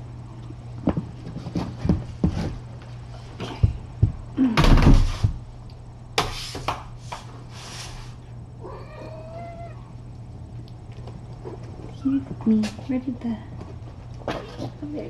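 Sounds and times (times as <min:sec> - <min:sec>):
kitten meowing: 0:08.6 - 0:09.9.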